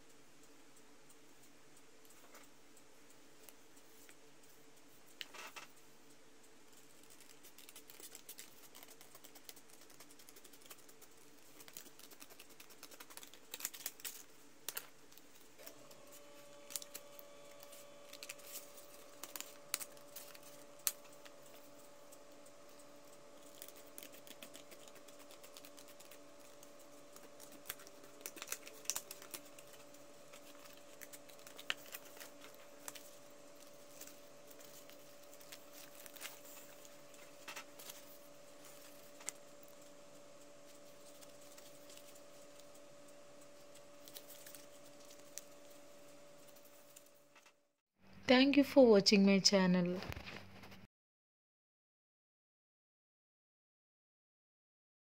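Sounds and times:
faint steady hum: 0.0 - 50.9
card paper handled and folded: 6.8 - 47.6.

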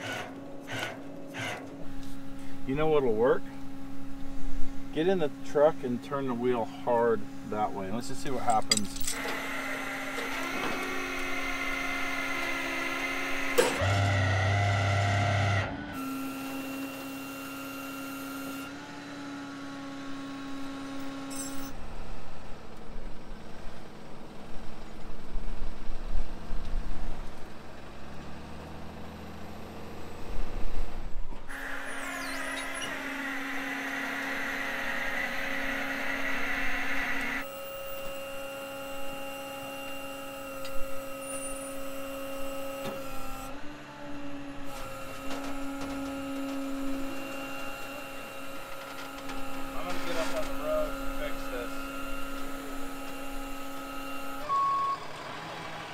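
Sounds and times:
hydraulic winch whining: 0.0 - 3.6, 7.5 - 19.0, 31.4 - 55.9
tow truck engine: 0.0 - 55.9.

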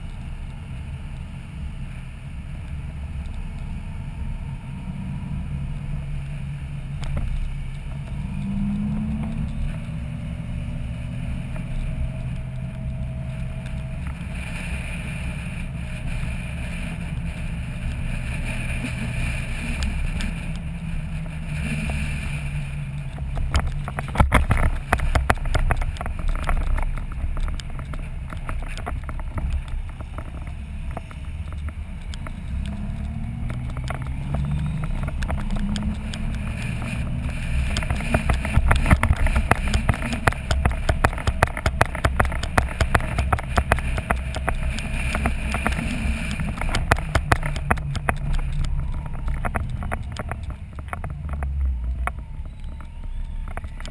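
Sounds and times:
motorcycle engine running: 0.0 - 53.9
wind noise on microphone: 0.0 - 53.9.

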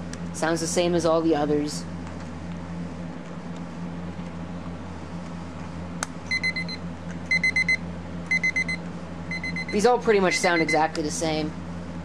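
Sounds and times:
rapid high alarm beeps: 6.3 - 10.9.

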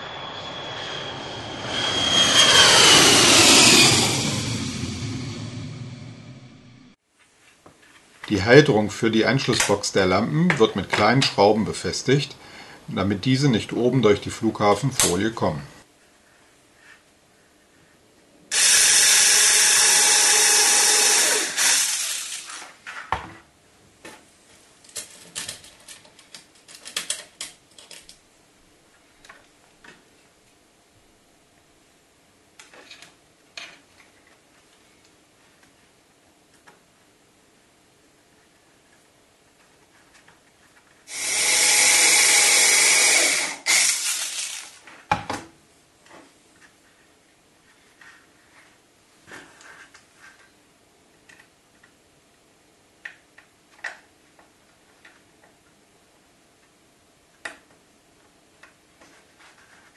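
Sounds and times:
mini drill running: 18.5 - 22.8, 41.1 - 44.8
drill knocking into cradle: 41.1 - 44.7.

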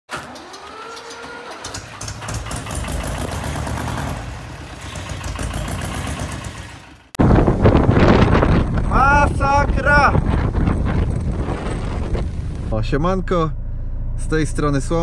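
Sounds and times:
tractor engine starting: 0.1 - 7.2.

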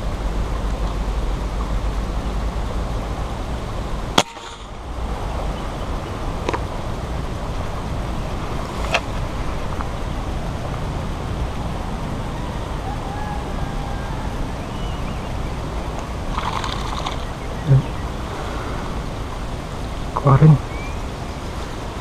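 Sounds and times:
low background noise: 0.0 - 22.0
air rifle shot: 4.2 - 4.7.

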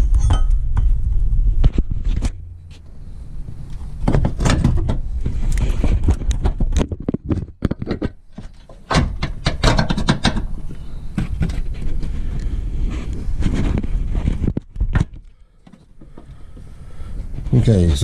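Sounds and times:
metal bracket clunking and scraping: 0.0 - 12.2.

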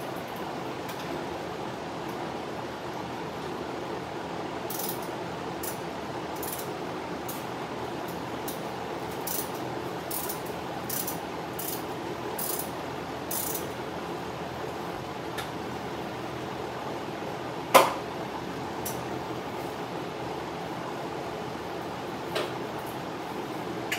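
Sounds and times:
ratchet wrench clicking: 4.7 - 5.8, 6.4 - 6.7, 8.5 - 11.8, 12.4 - 12.7, 13.3 - 13.7.

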